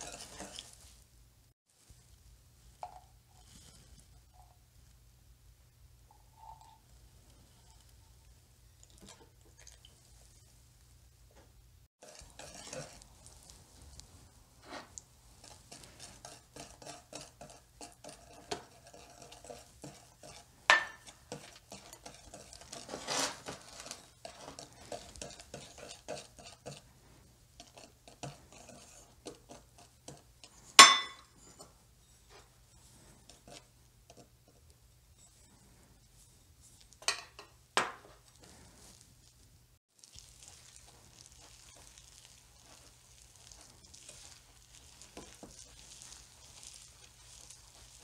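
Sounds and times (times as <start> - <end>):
whisk scraping in ceramic bowl: 0.0 - 0.9, 12.0 - 37.2, 40.0 - 48.0.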